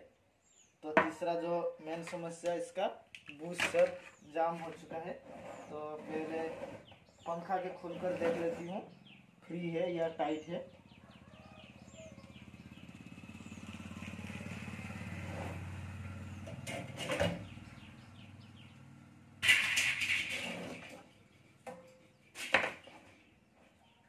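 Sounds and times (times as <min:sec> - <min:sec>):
passing vehicle engine: 0:10.6 - 0:21.5
fan grille clicks and rattle: 0:19.4 - 0:20.6.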